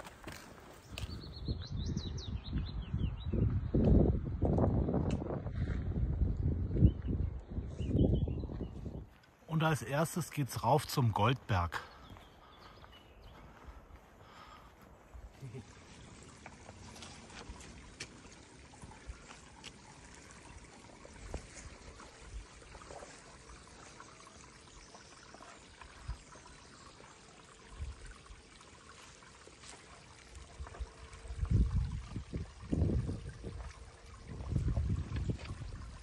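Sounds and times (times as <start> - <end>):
water trickling onto rocks: 0.0 - 1.2, 15.4 - 36.0.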